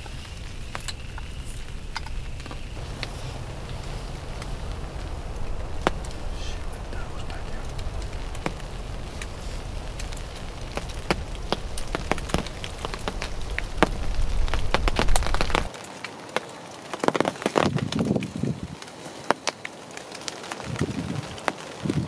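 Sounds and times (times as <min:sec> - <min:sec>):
low rumble: 0:00.0 - 0:15.7
raindrops ticking on fabric: 0:00.0 - 0:22.0.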